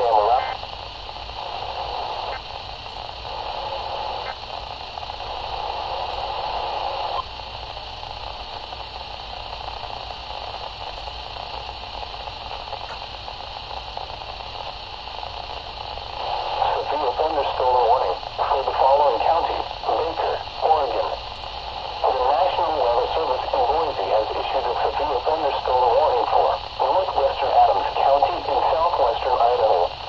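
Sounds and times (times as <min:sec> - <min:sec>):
fluctuating murmur: 0:00.0 - 0:00.7, 0:15.6 - 0:30.0
radio static hiss: 0:00.0 - 0:30.0.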